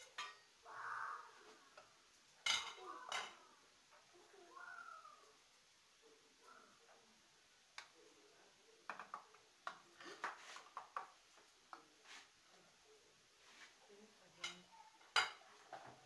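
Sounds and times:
oil popping in frying pan: 8.8s - 11.8s.

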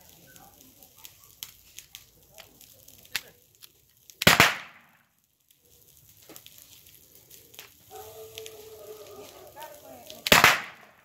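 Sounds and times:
revolver gunshot: 4.2s - 4.9s, 10.3s - 10.9s.

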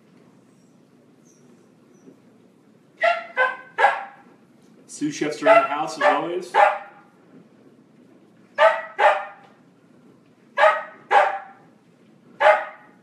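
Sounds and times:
dog barking: 3.0s - 4.2s, 5.4s - 7.0s, 8.6s - 9.5s, 10.6s - 11.6s, 12.4s - 13.0s.

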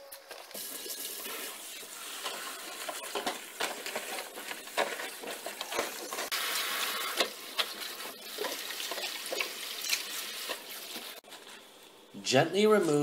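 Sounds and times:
hands squeezing wet leaves: 0.3s - 11.2s
faucet running water: 6.2s - 11.2s.

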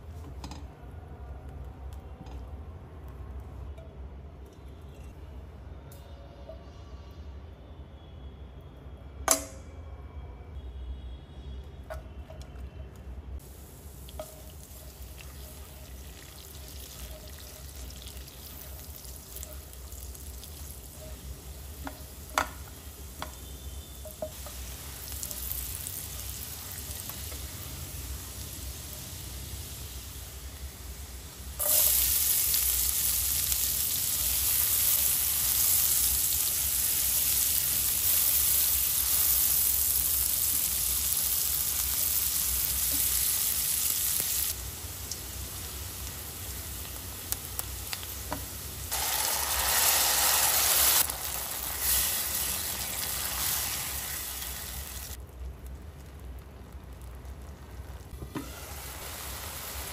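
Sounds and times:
garlic frying gently in oil: 10.8s - 59.9s
loud steady sizzle: 12.8s - 59.9s.

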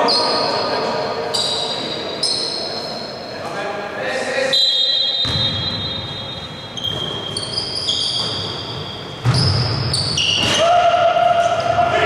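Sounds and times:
basketball bouncing: 8.1s - 10.5s.

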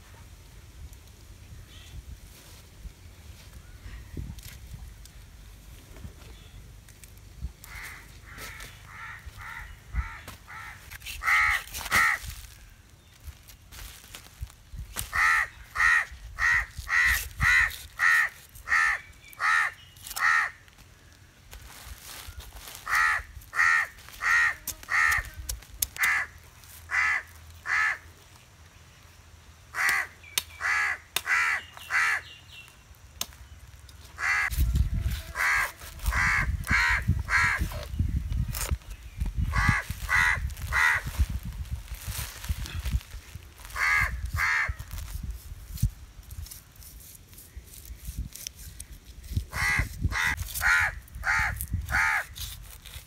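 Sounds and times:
crows cawing: 7.6s - 12.3s, 15.1s - 20.7s, 22.8s - 25.3s, 26.0s - 28.1s, 29.7s - 32.3s, 34.2s - 34.5s, 35.4s - 37.8s, 39.5s - 41.1s, 43.6s - 44.8s, 49.5s - 52.3s.

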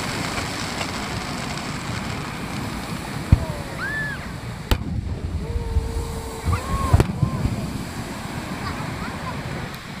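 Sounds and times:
firework shells bursting: 0.0s - 5.4s, 6.5s - 7.6s
waves washing on shore: 0.0s - 10.0s.

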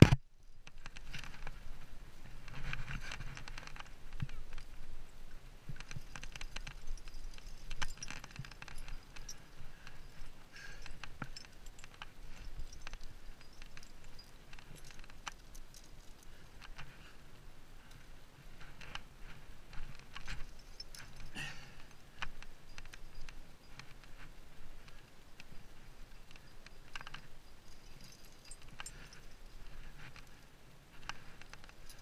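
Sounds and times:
climbing gear jangling: 5.7s - 17.1s, 19.7s - 32.0s.

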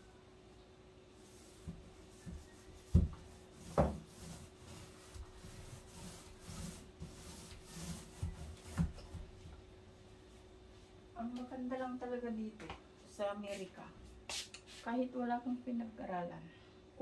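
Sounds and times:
paint applicator rubbing wood: 1.2s - 9.3s.

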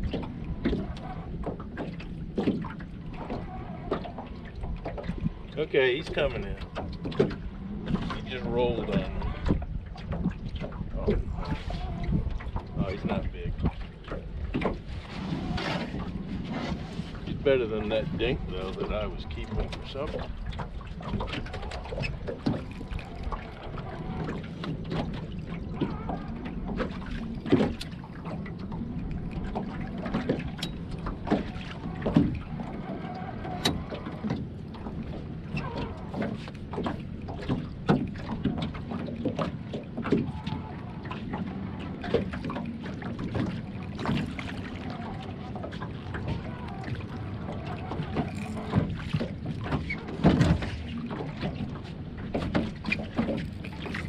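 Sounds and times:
knocks and clicks of gear: 28.6s - 40.4s.

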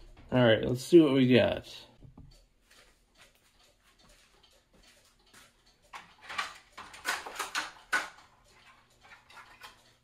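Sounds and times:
plastic clicks and scraping: 5.9s - 10.0s
plastic cover clattering: 6.3s - 8.2s.

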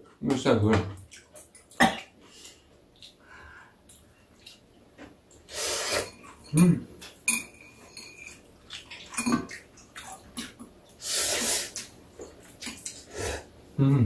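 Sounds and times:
slurping: 5.4s - 6.4s, 9.0s - 13.5s
chopsticks clinking against bowls: 5.9s - 8.4s
low voice sounds: 13.8s - 14.0s.

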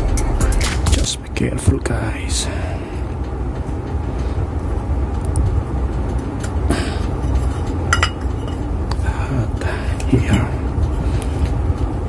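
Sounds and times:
metal clinks and scraping: 7.2s - 8.7s.

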